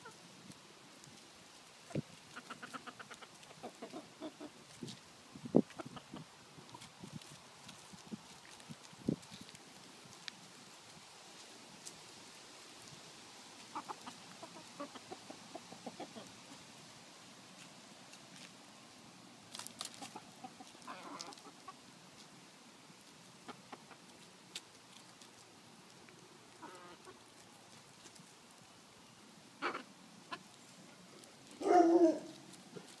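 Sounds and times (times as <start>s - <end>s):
hens clucking: 1.9s - 4.7s, 5.6s - 6.9s, 13.6s - 16.6s, 19.8s - 21.8s, 23.4s - 24.2s, 26.5s - 27.4s, 29.6s - 30.6s.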